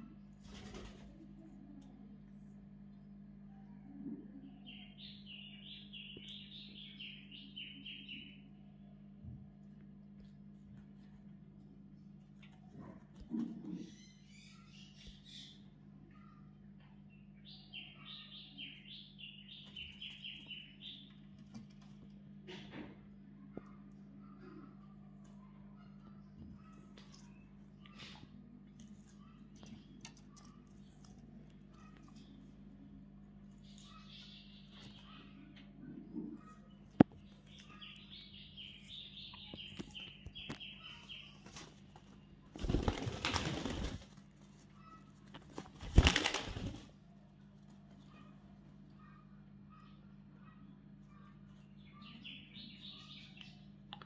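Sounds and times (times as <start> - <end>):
parrot wings flapping: 42.6 - 44.3, 45.4 - 46.9.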